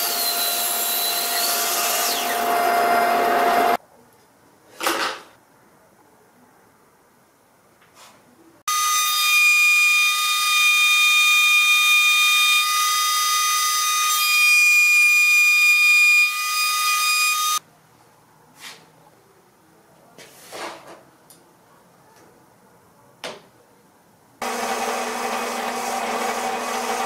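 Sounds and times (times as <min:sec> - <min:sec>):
router high whine: 0:24.4 - 0:27.0.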